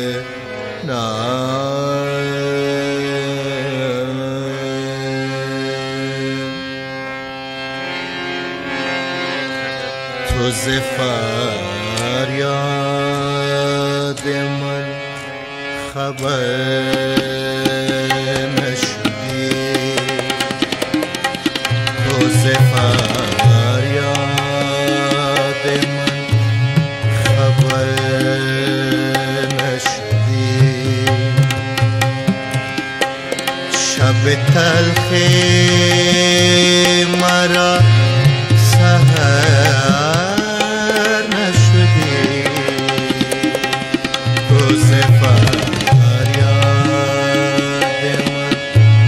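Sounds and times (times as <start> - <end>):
harmonium melody: 0.0 - 49.0
tabla strokes: 16.9 - 49.0.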